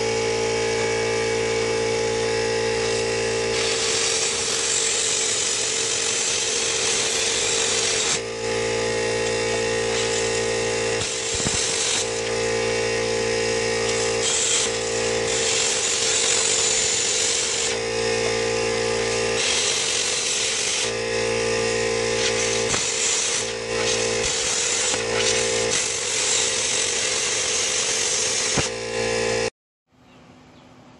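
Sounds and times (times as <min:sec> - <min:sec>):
plasma cutter hissing: 0:03.5 - 0:08.2, 0:09.4 - 0:12.4, 0:13.4 - 0:17.8, 0:18.8 - 0:28.8.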